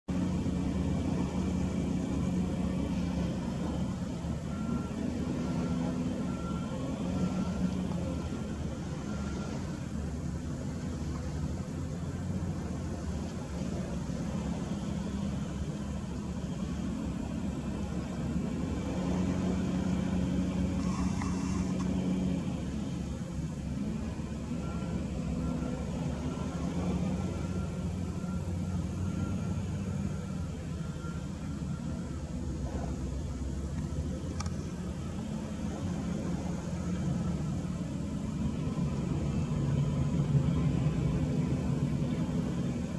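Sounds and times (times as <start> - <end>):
wheel loader diesel engine revving: 0.0 - 42.9
faint short beeping: 4.4 - 10.0.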